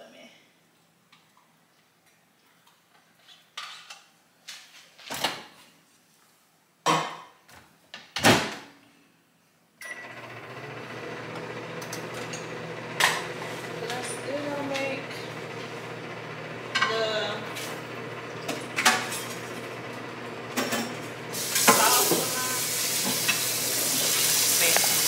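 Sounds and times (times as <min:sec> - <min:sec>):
microwave oven humming: 0:09.8 - 0:25.0.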